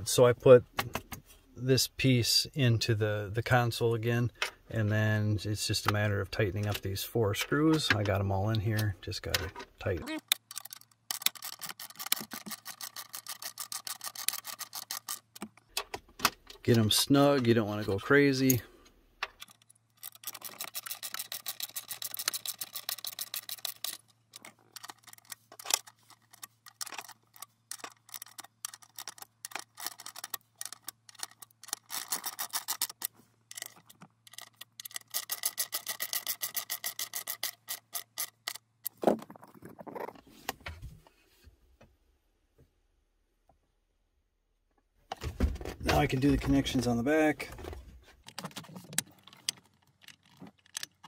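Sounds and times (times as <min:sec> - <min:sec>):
socket ratchet clicking: 0:10.2 - 0:15.6, 0:19.3 - 0:38.6.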